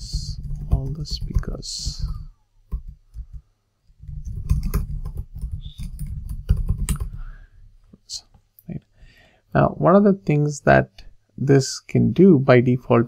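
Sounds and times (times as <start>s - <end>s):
computer keyboard typing: 0.0s - 7.4s.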